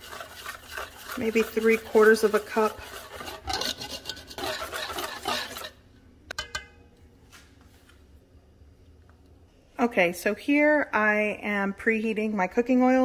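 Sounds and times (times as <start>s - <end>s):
whisk beating batter in metal bowl: 0.0s - 5.8s.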